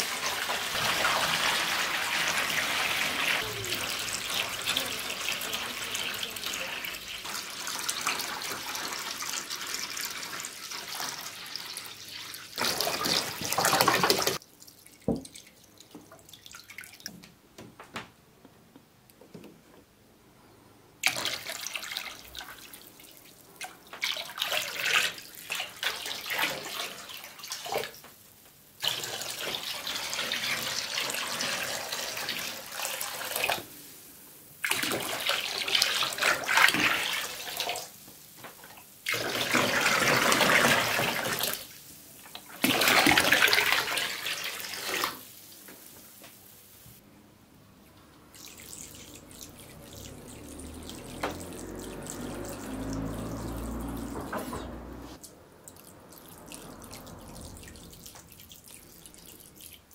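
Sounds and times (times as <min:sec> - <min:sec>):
liquid pouring and splashing: 0:00.0 - 0:17.2, 0:21.0 - 0:28.0, 0:28.8 - 0:45.7, 0:48.3 - 0:55.0, 0:55.6 - 0:59.9
faint liquid trickle: 0:14.4 - 0:17.3, 0:47.8 - 0:59.9.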